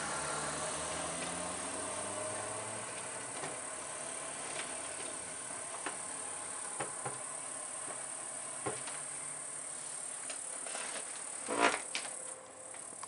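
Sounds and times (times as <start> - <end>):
night-time ambience hiss: 0.0 - 13.0.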